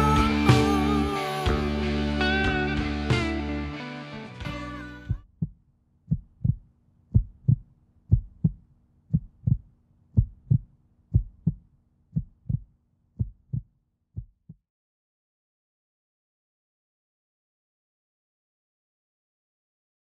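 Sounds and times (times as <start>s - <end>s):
rock music: 0.0s - 5.2s
heartbeat thumps: 5.1s - 14.6s.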